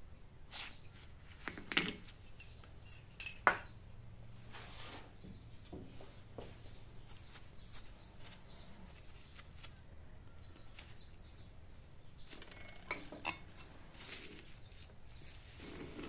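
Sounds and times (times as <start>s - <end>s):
ringing metal clinks: 15.4s - 16.0s.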